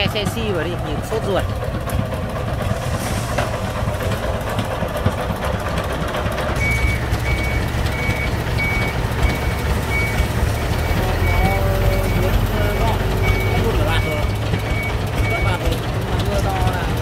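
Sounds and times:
engine running: 0:00.0 - 0:17.0
forklift reversing alarm beeping: 0:06.6 - 0:16.8.

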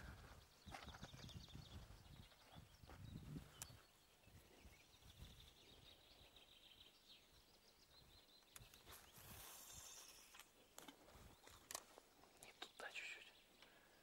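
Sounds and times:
fishing line running off reel: 0:09.2 - 0:10.5.

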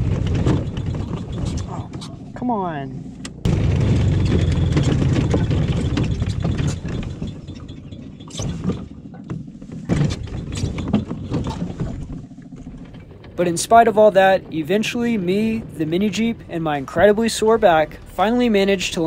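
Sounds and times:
body knocks and rattles: 0:00.0 - 0:02.6, 0:03.3 - 0:14.7
small engine running: 0:00.0 - 0:17.4.

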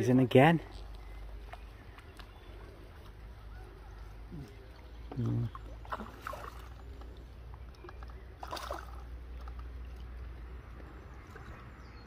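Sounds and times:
low steady rumble: 0:00.6 - 0:12.0
water sloshing: 0:00.7 - 0:12.0
fish splashing at water surface: 0:04.9 - 0:11.8.

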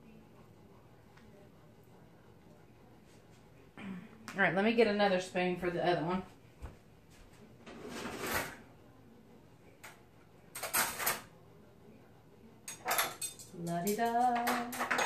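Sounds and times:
woman speaking: 0:03.8 - 0:06.4, 0:13.5 - 0:15.0
kitchen drawer opening and shutting: 0:07.7 - 0:08.6
cutlery clinking: 0:09.9 - 0:11.3, 0:12.6 - 0:15.0.

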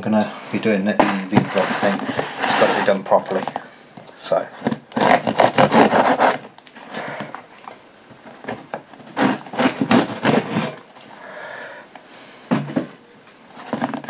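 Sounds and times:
cardboard box rubbing and scraping: 0:00.5 - 0:03.5, 0:04.6 - 0:07.4, 0:09.1 - 0:10.8.

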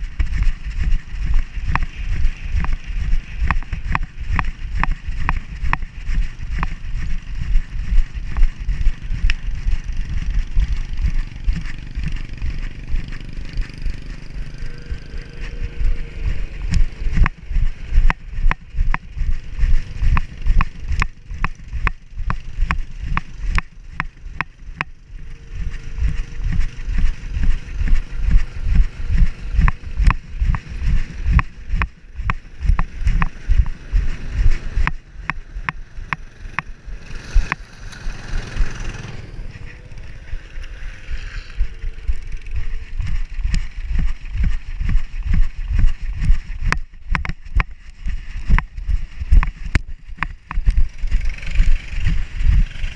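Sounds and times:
low thumps and sharp clicks: 0:00.0 - 0:52.9.

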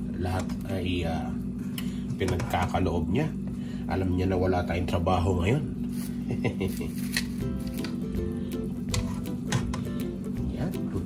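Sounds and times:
background music with held notes: 0:07.1 - 0:11.0.

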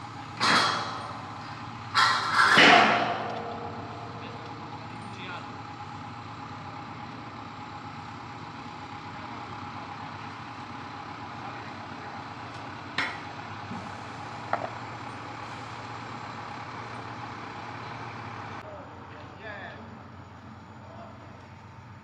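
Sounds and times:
diesel engine running: 0:00.0 - 0:22.0.

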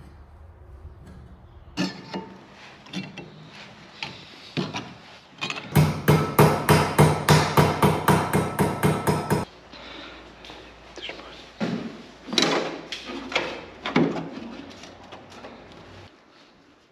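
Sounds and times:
hammer strikes: 0:05.6 - 0:09.5.

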